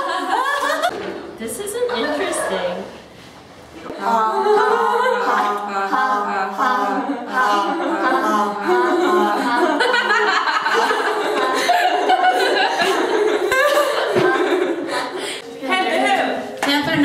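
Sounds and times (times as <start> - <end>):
voices singing a cappella: 3.8 - 16.6.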